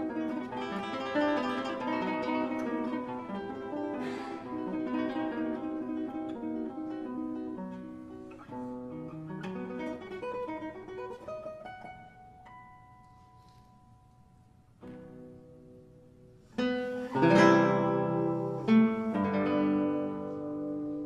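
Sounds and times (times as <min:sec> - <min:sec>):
plucked acoustic guitar melody: 0:00.0 - 0:21.0.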